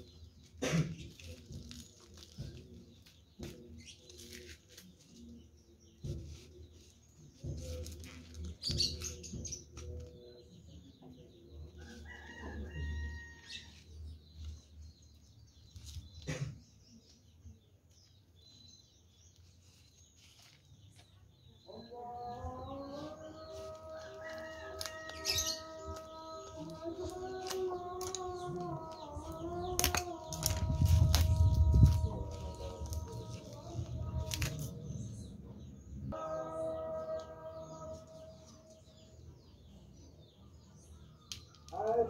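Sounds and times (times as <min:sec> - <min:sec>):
tissue paper crinkling: 0:23.5 - 0:28.2.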